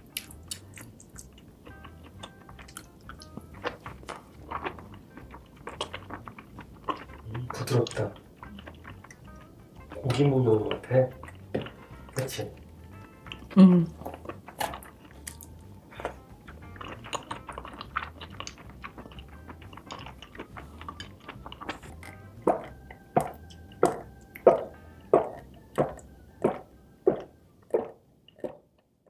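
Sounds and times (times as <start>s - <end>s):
chewing with wet mouth clicks: 0.0s - 28.9s
loud swallowing gulps: 13.8s - 28.8s.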